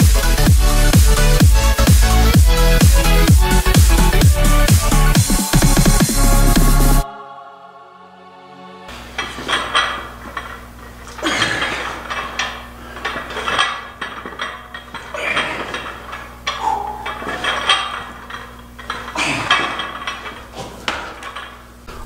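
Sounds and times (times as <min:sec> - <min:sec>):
barbell plates clinking and rattling: 0:09.0 - 0:22.0.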